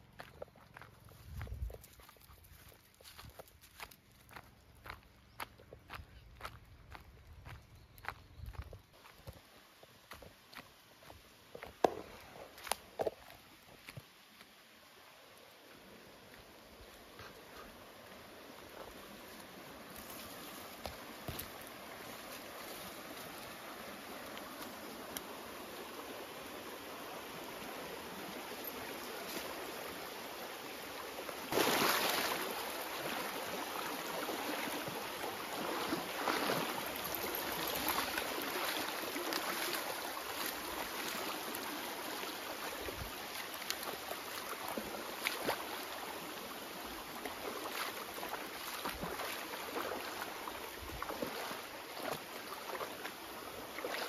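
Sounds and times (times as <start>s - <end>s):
rocky stream running: 0.0s - 54.0s
dog splashing through water: 31.5s - 33.2s, 35.5s - 41.3s, 47.3s - 53.2s.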